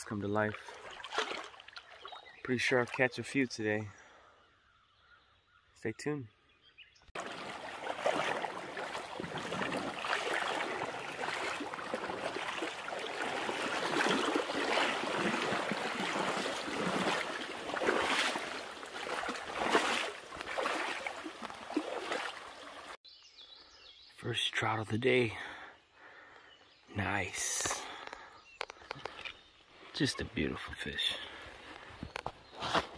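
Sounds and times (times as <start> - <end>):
creek water babbling: 0.0 - 4.2, 7.1 - 23.0.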